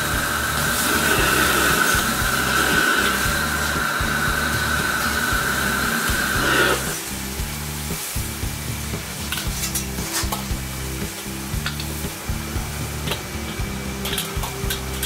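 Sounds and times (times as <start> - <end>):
claypot food sizzling and crackling: 0.0 - 15.0
steady high whine: 0.0 - 15.0.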